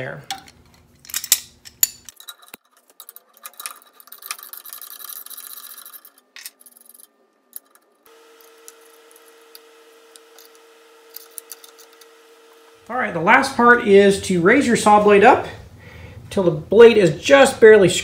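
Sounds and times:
steady hum: 8.1s - 17.3s.

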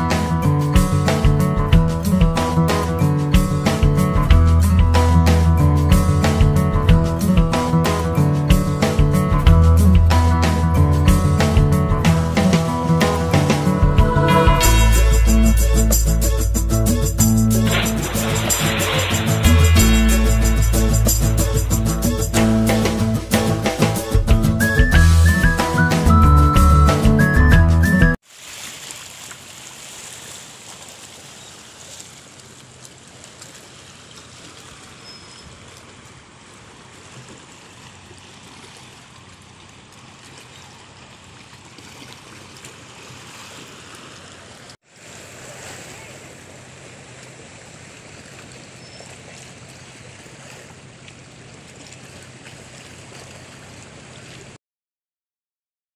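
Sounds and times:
sea washing against rocky shore: 17.5s - 23.2s, 28.2s - 54.6s.

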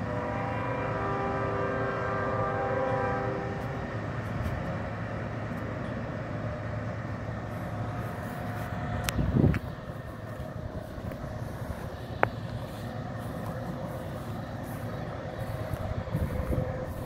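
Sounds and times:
locomotive air horn chord: 0.0s - 4.6s, 11.4s - 17.0s
low rumble of locomotives: 0.0s - 17.0s.

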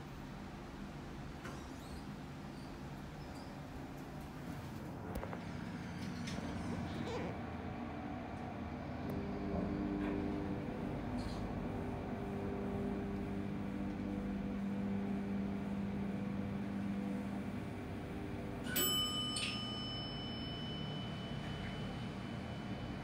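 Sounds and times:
elevator drive humming: 0.2s - 23.0s
elevator arrival chime: 18.4s - 23.0s.

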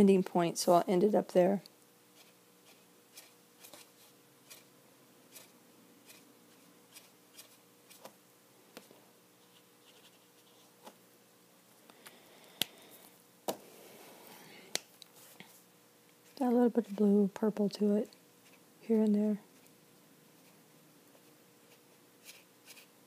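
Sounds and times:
marker ticks and scratches on paper: 2.2s - 4.7s.

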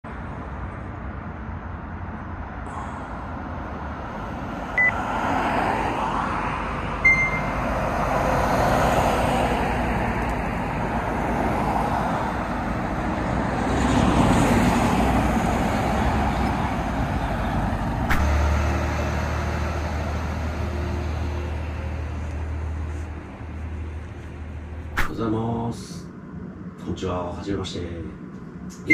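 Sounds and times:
road traffic rushing: 0.0s - 28.9s
low hum: 15.9s - 27.0s.

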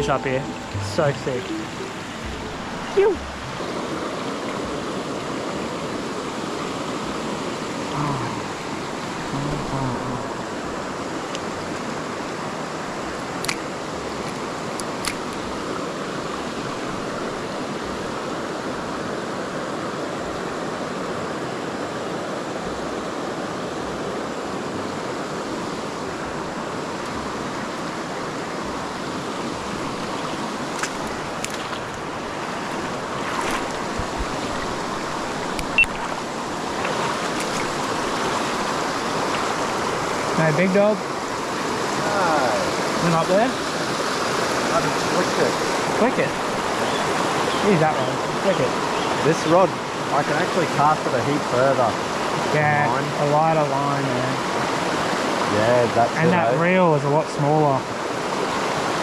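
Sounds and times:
creek flowing over rocks: 0.0s - 59.0s
light sharp clicks: 13.4s - 15.4s.

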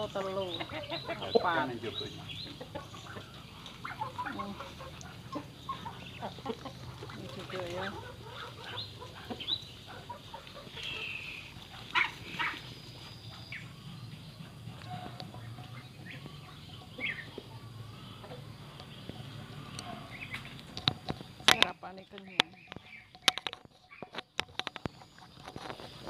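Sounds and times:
chickens squawking: 0.0s - 26.0s
steady low hum: 0.0s - 26.0s.

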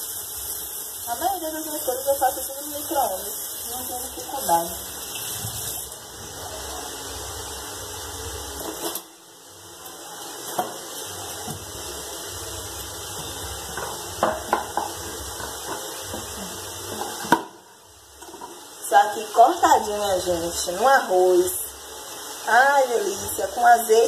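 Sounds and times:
tap running into steel sink: 13.2s - 16.3s, 16.9s - 17.6s.

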